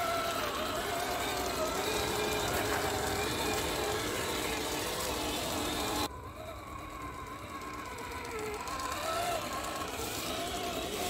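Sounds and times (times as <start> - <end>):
rc car motor whining: 0.0 - 11.0.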